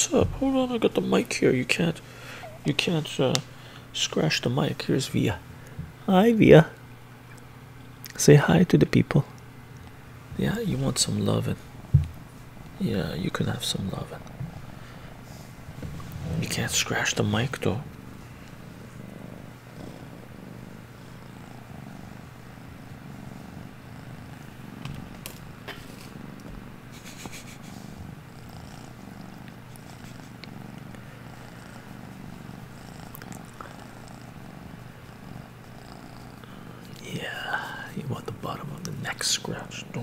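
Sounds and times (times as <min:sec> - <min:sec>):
kitten purring: 0:10.4 - 0:40.0.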